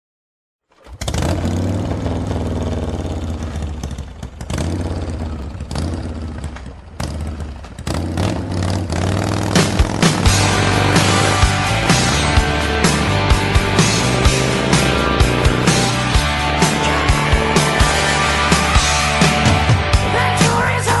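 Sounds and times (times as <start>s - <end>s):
motorcycle engine revving: 0.7s - 20.8s
rock drumbeat: 9.2s - 21.0s.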